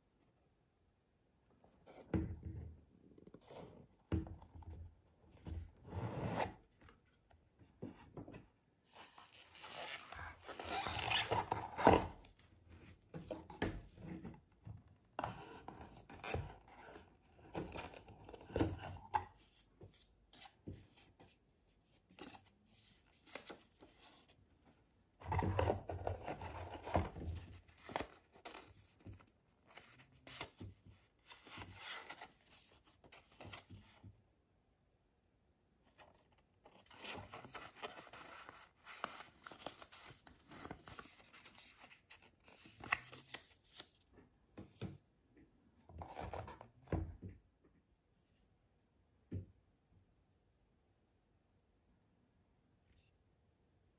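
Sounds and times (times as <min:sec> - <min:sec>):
paper rustling and crinkling: 0:36.1 - 0:44.1.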